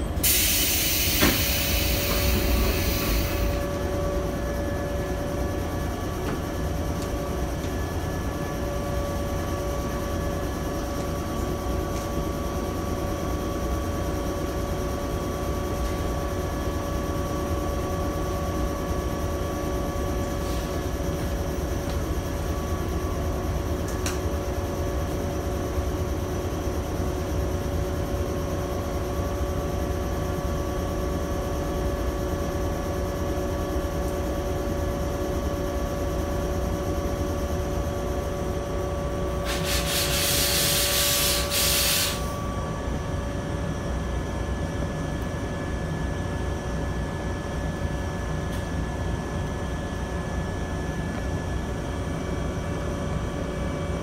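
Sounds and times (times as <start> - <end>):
train cabin hum with tones: 0.0 - 54.0
compressed air hiss of doors: 0.2 - 3.7, 39.4 - 42.4.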